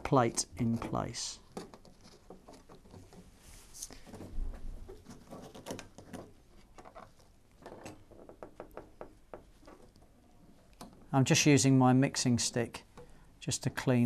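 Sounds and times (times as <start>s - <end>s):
ticks and rustles of twisting wire: 0.0s - 11.2s.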